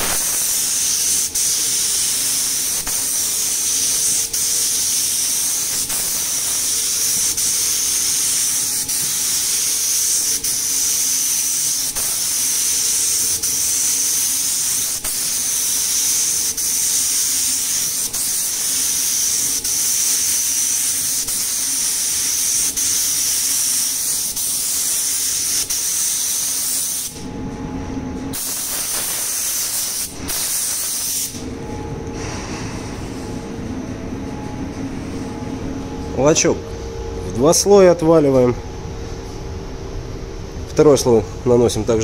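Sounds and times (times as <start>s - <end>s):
spray gun hissing: 0.0s - 27.2s, 28.4s - 31.4s
low steady rumble: 31.4s - 41.9s.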